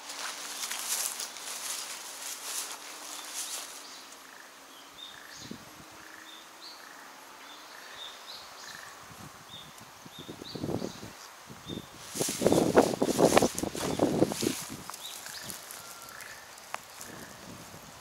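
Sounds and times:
dry grass rustling underfoot: 0:00.0 - 0:04.3, 0:11.8 - 0:18.0
small bird chirping: 0:00.6 - 0:17.4.

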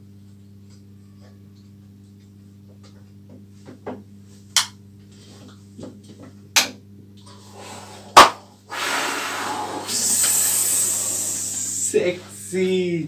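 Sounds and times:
low mains hum: 0:00.0 - 0:13.0
steady hiss: 0:08.7 - 0:13.0.

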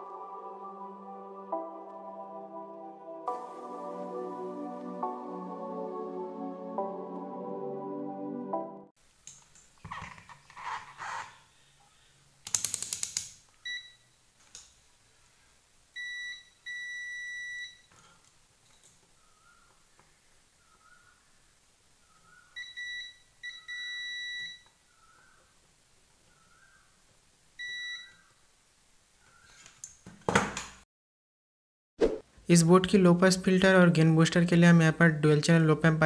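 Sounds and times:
multimeter continuity beeps: 0:13.7 - 0:14.1, 0:16.0 - 0:17.9, 0:22.6 - 0:24.7, 0:27.6 - 0:28.2.

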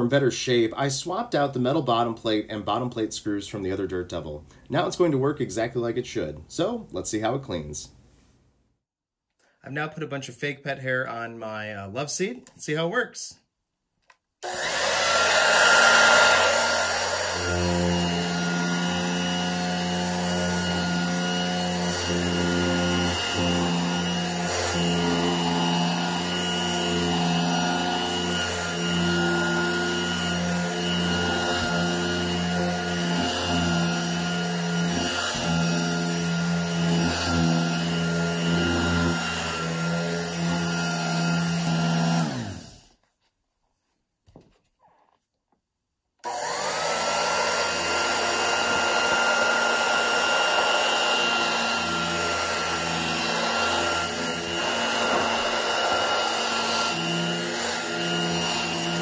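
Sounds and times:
hand vacuum running: 0:14.4 - 0:42.9, 0:46.2 - 0:59.0.

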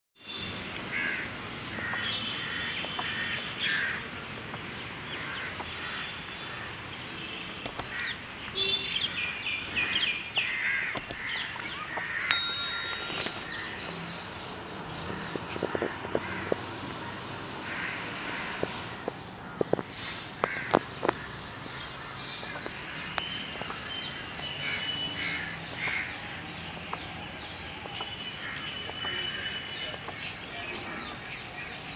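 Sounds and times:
outdoor background noise: 0:00.2 - 0:31.9
crows cawing: 0:00.9 - 0:04.1, 0:05.1 - 0:06.8, 0:07.9 - 0:08.2, 0:09.8 - 0:12.8, 0:15.6 - 0:16.6, 0:17.6 - 0:18.6, 0:20.4 - 0:23.9, 0:24.6 - 0:26.6, 0:27.9 - 0:29.8
small birds chirping: 0:01.6 - 0:15.7, 0:18.6 - 0:31.9.

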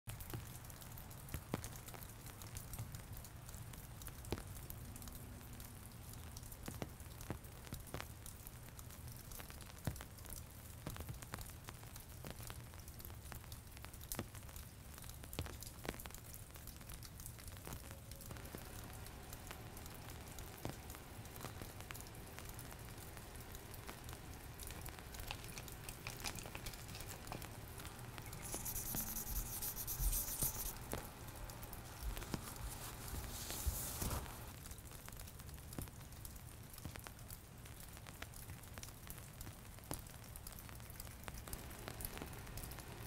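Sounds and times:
faint clicks and crackles: 0:00.1 - 0:43.0
low hum: 0:18.3 - 0:34.5.

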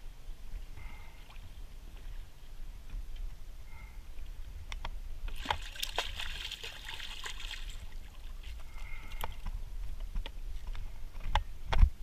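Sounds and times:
water splashing and trickling: 0:05.3 - 0:09.6.

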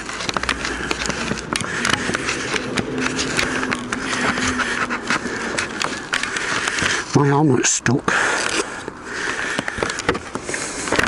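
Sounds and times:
helmet scraping against microphone: 0:00.0 - 0:07.2.

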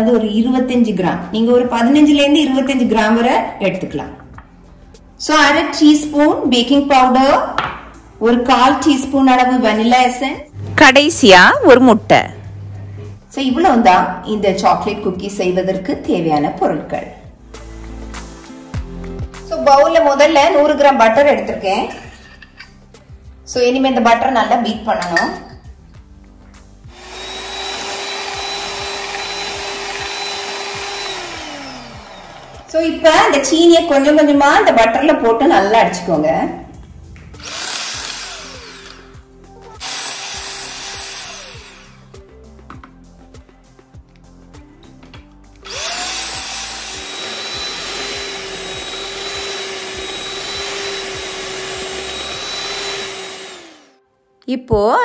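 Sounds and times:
electric mixer whining: 0:26.9 - 0:33.2, 0:37.4 - 0:42.1, 0:45.6 - 0:54.0.

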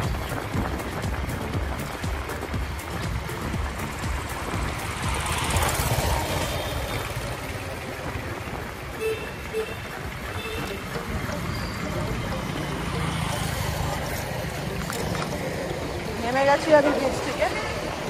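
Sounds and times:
wind on microphone: 0:00.0 - 0:07.4
road traffic noise: 0:00.0 - 0:18.0.

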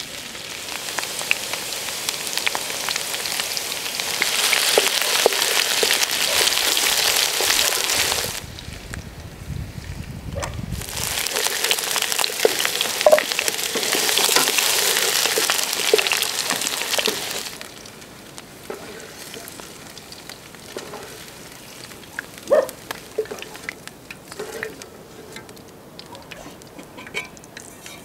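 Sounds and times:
potatoes sizzling in oil: 0:00.0 - 0:28.0
wooden spatula knocking and scraping: 0:20.7 - 0:21.2, 0:23.2 - 0:25.6.

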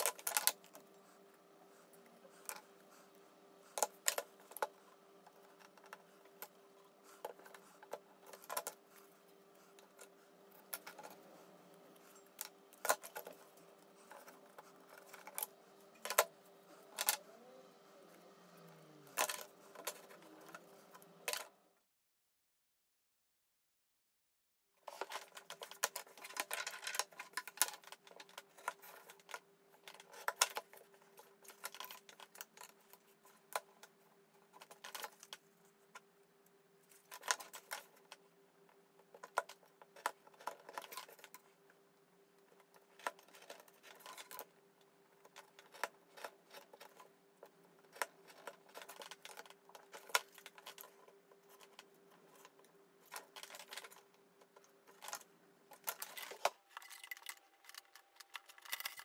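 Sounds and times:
faint steady hum: 0:00.0 - 0:21.9, 0:24.8 - 0:59.0.

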